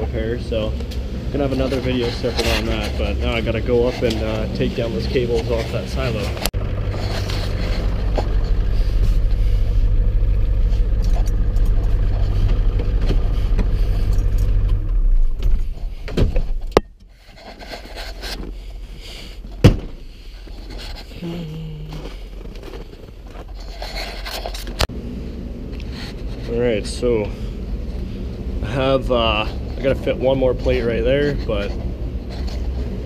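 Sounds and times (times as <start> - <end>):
diesel engine idling: 0.0 - 16.1
clunks: 1.6 - 21.1.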